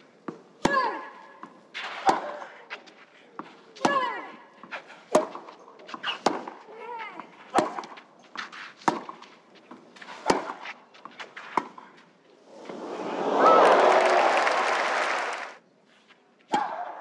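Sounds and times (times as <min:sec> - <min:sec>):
tennis rackets hitting ball: 0:00.2 - 0:12.8
players grunting: 0:12.5 - 0:15.4.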